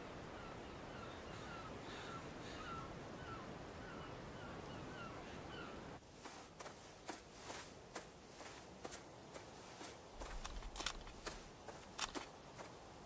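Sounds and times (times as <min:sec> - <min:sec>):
soft taps and rustles: 0:06.2 - 0:12.8.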